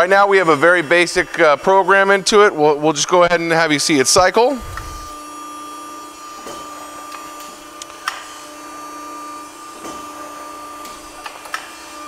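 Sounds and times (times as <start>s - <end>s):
hydraulic pump hum: 3.2s - 12.0s.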